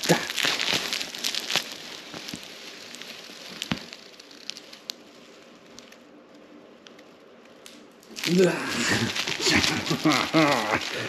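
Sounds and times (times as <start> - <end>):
dry straw rustling: 0.0 - 6.0, 8.1 - 11.0
small ticks: 0.1 - 8.3.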